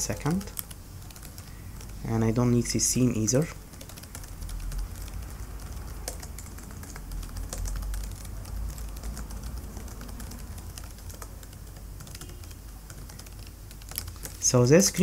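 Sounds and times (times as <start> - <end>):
computer keyboard typing: 0.0 - 15.0
low steady hum: 0.0 - 15.0.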